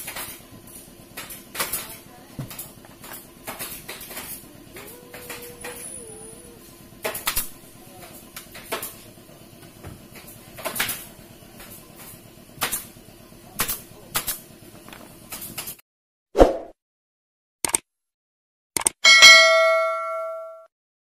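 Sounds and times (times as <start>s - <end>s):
pneumatic staple gun firing: 12.6s - 12.9s, 13.6s - 14.4s.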